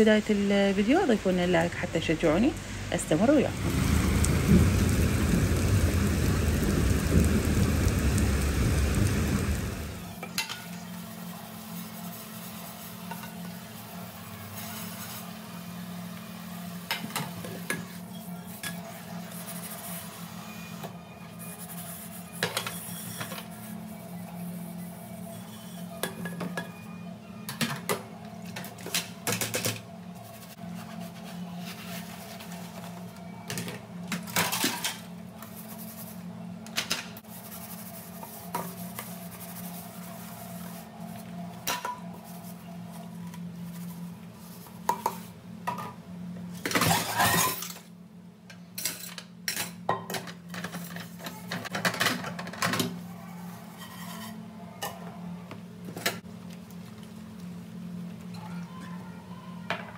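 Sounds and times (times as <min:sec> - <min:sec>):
steady low hum: 0:00.0 - 0:10.2
dishes clattering in a sink: 0:48.8 - 0:50.8.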